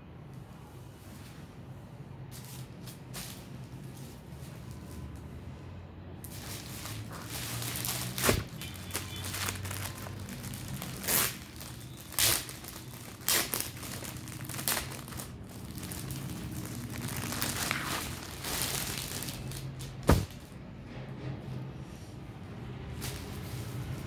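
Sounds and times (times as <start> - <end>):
plastic packaging crinkling: 6.2 - 20.5.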